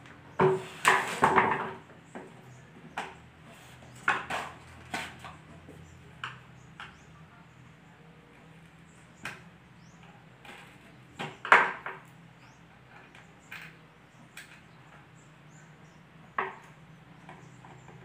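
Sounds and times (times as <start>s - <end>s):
hand tool knocking and scraping wood: 0.1s - 7.1s.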